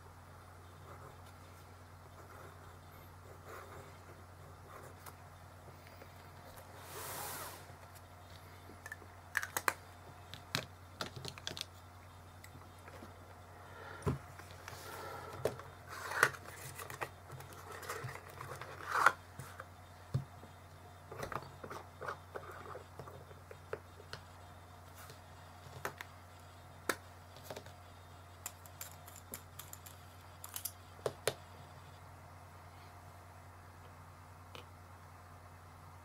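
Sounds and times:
hands handling small objects: 28.5 - 30.8.

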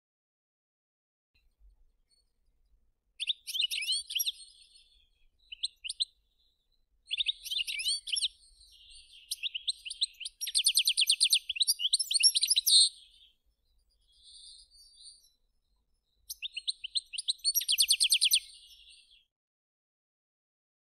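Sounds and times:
finch singing twittering trill: 3.2 - 15.4, 16.1 - 19.2.

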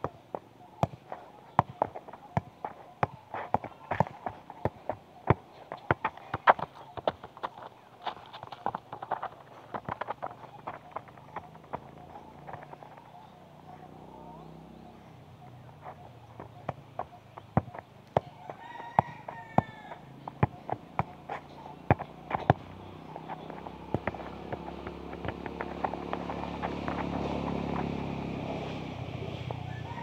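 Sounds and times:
football kicked thuds: 0.8 - 7.7, 8.4 - 13.0, 16.4 - 18.3, 20.3 - 27.1.

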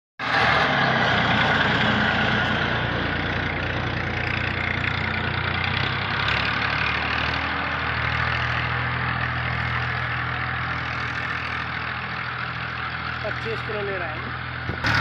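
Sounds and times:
tractor diesel engine running: 0.2 - 15.0.

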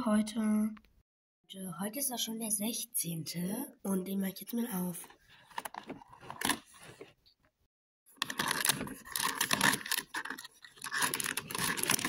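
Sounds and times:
packaging crackling and rustling: 8.1 - 12.0.

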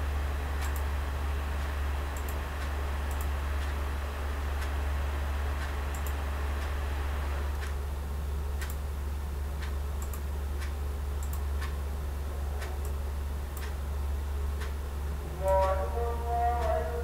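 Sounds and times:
low electrical hum and hiss: 0.0 - 17.0
computer mouse clicking: 2.2 - 2.4, 3.1 - 3.8, 5.6 - 6.7, 9.6 - 11.8.

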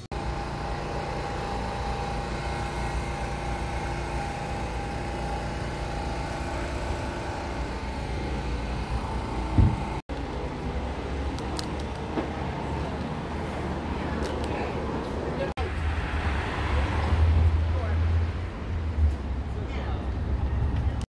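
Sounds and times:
rumble of passing vehicles: 0.0 - 21.0
short low thump: 9.5 - 9.9.

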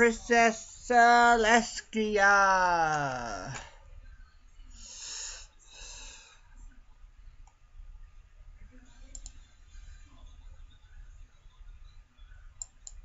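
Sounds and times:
low steady hum: 0.0 - 13.0
computer mouse clicks: 9.1 - 9.4, 12.6 - 13.0.

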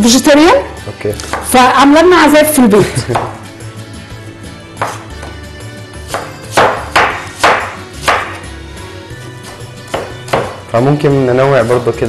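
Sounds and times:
background music: 0.0 - 12.0
knife chopping on wooden board: 1.2 - 1.5, 4.8 - 5.4, 6.0 - 8.5, 9.5 - 10.6.

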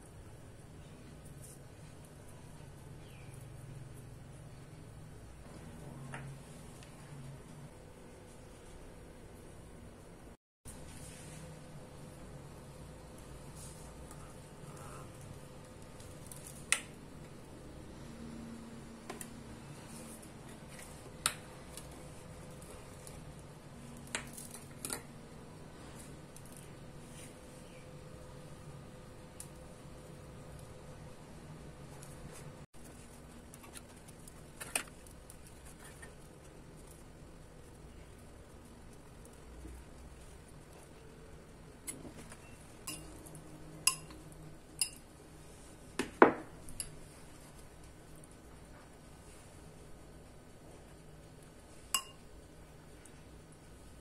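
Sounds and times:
faint steady hum: 0.0 - 54.0
metal spoon clinking ceramic bowl: 42.8 - 43.2, 43.8 - 44.2, 52.0 - 52.2.

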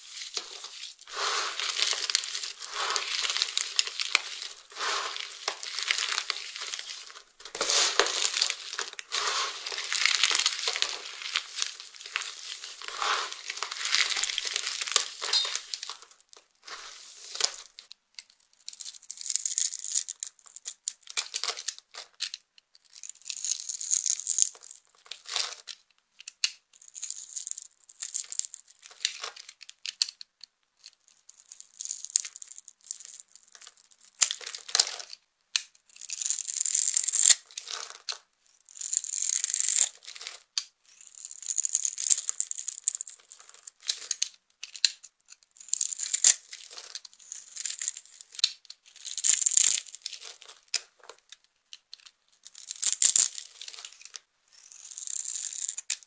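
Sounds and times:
soap cubes crunching: 0.2 - 17.8, 45.6 - 50.8.

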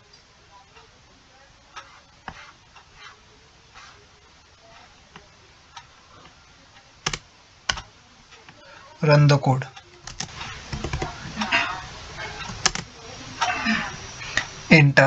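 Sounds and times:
keyboard and mouse clicks: 7.0 - 7.9, 10.0 - 11.5, 12.4 - 12.9.

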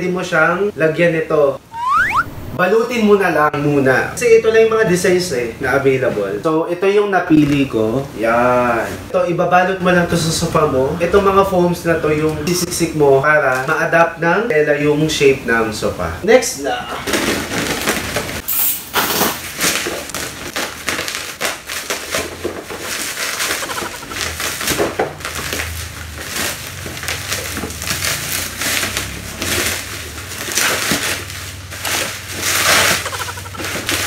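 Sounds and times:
plastic wrapping crinkling: 19.4 - 34.0.

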